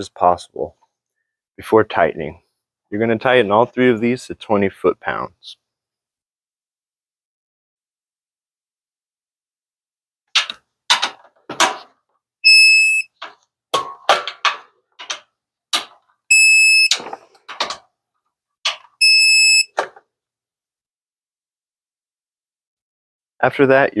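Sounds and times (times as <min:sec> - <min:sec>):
high electronic beep: 0:12.4 - 0:13.1, 0:16.3 - 0:16.9, 0:19.0 - 0:19.7.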